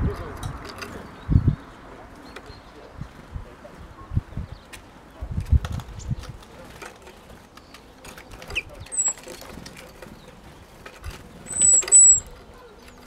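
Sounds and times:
high thin whistled bird calls: 11.4s - 12.7s.

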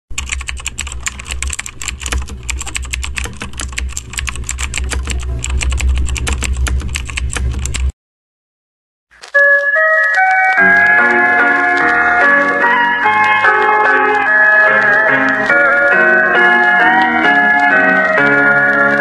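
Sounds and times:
fast typing on keyboard: 0.1s - 7.9s, 9.6s - 19.0s
low steady hum: 0.3s - 7.9s.

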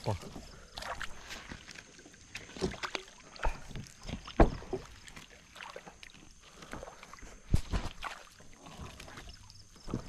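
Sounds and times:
water slapping against hull: 0.0s - 10.0s
plastic kayak hull knocks: 4.2s - 4.8s.

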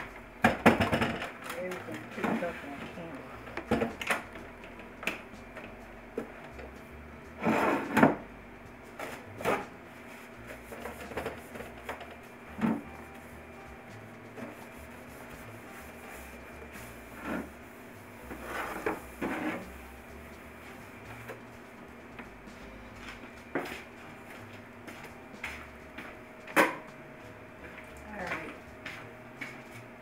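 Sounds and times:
kitchen items knocking on countertop: 0.4s - 1.2s.

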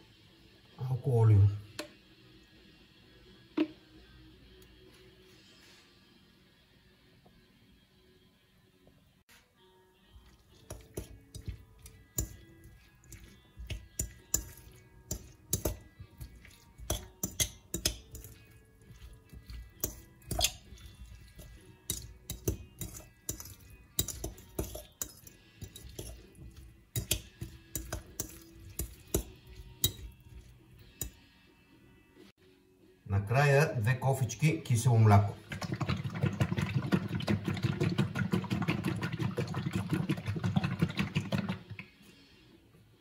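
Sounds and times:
quiet background music: 0.0s - 43.0s
fork clinking against glass bowl: 10.6s - 31.2s.

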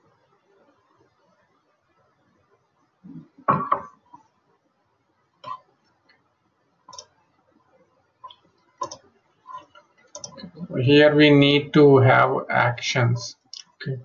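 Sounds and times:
computer mouse clicks: 6.9s - 7.2s, 8.2s - 10.5s.

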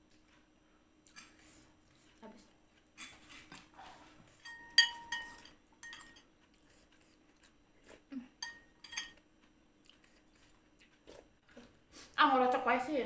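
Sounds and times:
spoon clinking on ceramic bowl: 4.4s - 6.3s, 8.4s - 9.2s.

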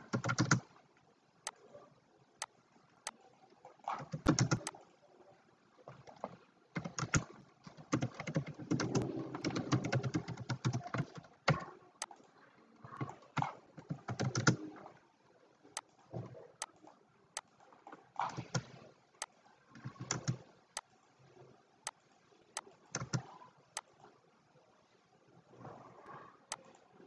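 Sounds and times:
computer keyboard typing: 0.1s - 0.6s, 4.1s - 4.7s, 6.8s - 7.2s, 7.8s - 11.7s, 13.9s - 14.6s, 19.9s - 20.4s, 23.0s - 23.3s.

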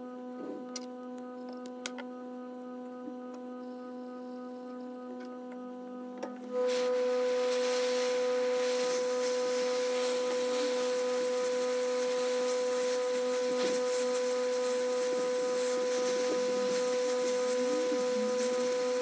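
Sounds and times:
fan whine: 0.0s - 19.0s
hot air station blowing: 6.4s - 19.0s.

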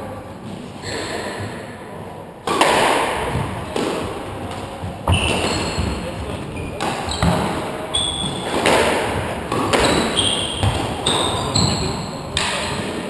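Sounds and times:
squash ball smacking rackets and walls: 2.4s - 13.0s
shoes squeaking on wooden floor: 4.9s - 12.3s.

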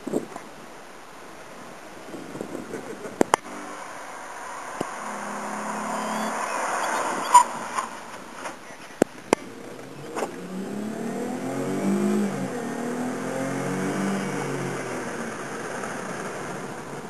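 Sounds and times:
car engine accelerating: 3.3s - 8.6s, 9.4s - 17.0s.

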